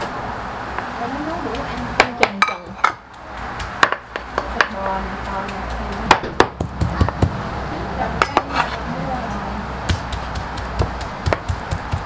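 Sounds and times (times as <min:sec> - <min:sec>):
utensils scraping a pan: 0:08.2 - 0:08.9.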